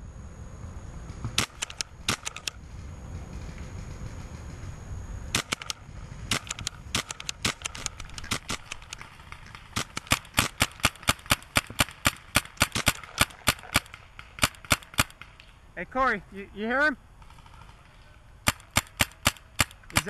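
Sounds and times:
paintball markers firing: 1.3 - 2.6, 5.4 - 15.6, 17.2 - 20.0.

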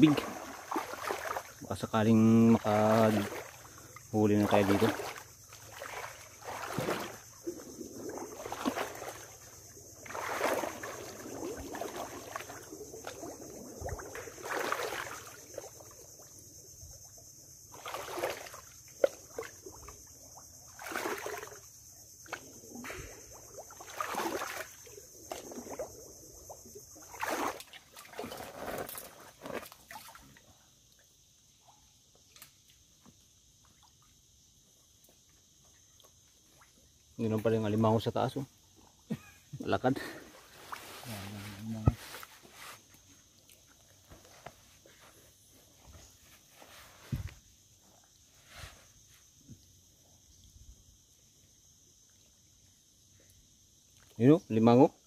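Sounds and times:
water sloshing from wading: 0.0 - 31.0.

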